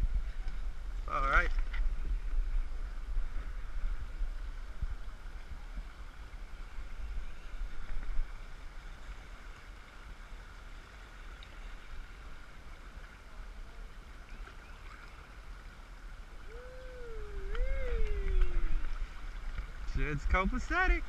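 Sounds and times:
river water rushing: 14.6 - 21.0
low rumble: 16.4 - 20.3.

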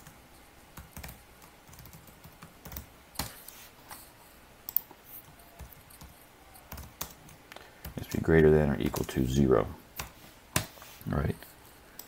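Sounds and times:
typing on keyboard: 0.8 - 3.3, 4.7 - 9.2.

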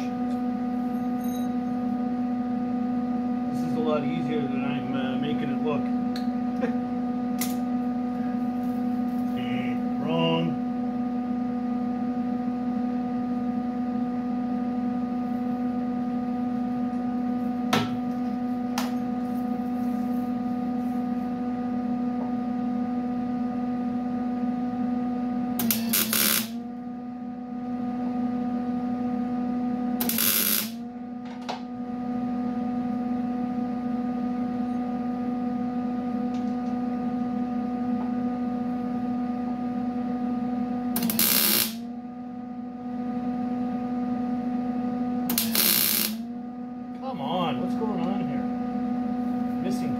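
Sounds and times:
steady electrical hum: 0.0 - 49.9
welding arc crackle: 25.6 - 26.6, 30.0 - 30.8, 41.0 - 41.8, 45.3 - 46.2.

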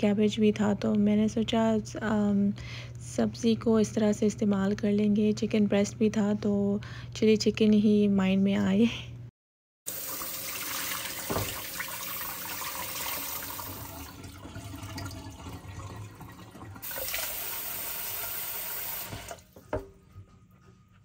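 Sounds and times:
tap running into sink: 10.6 - 12.2.

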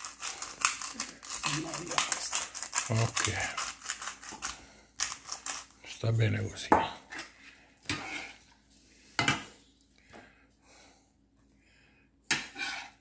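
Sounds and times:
metal spoon scraping a frying pan: 7.9 - 8.4, 12.3 - 13.0.

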